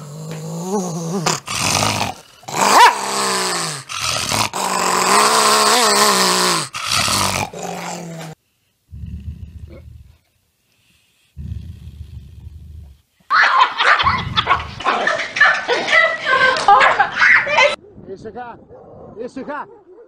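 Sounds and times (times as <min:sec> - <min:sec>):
dog growling low: 0:00.0 - 0:10.3, 0:11.4 - 0:13.0
small dog growling and snarling: 0:00.0 - 0:10.3, 0:11.4 - 0:13.0.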